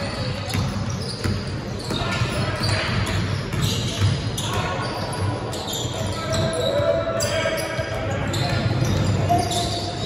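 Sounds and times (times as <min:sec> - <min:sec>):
basketball bouncing on gym floor: 0:00.1 - 0:05.0.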